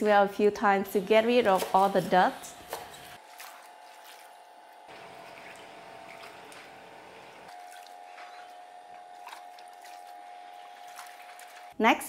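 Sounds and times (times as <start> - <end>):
water sloshing and splashing: 1.3 - 11.8.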